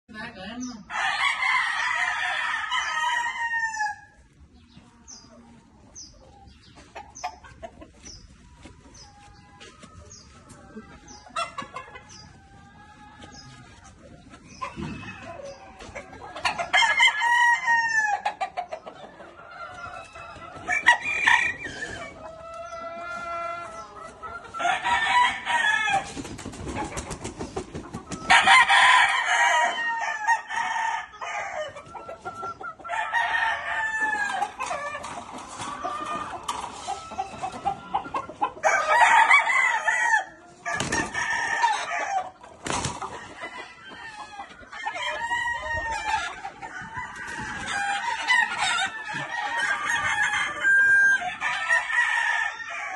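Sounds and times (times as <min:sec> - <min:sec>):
roosters crowing: 0:00.8 - 0:04.4, 0:14.6 - 0:27.2, 0:28.0 - 0:52.9.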